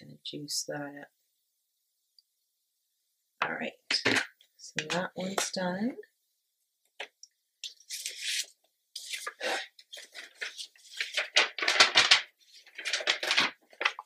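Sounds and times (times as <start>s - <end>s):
paper rustling and crinkling: 7.7s - 14.0s.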